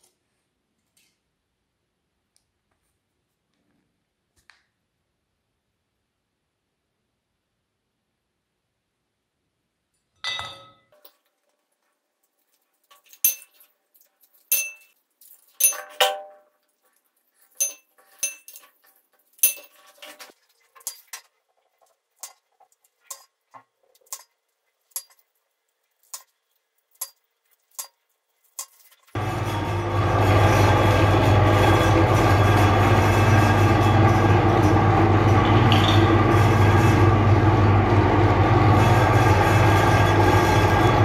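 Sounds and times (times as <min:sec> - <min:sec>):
eggs clinking in hard bowl: 0:13.0 - 0:13.7, 0:14.3 - 0:16.6, 0:17.5 - 0:21.3, 0:35.4 - 0:36.1.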